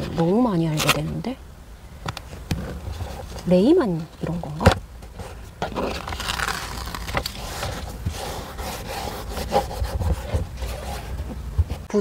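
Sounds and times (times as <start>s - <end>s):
hands rubbing velcro strip: 5.7s - 11.0s.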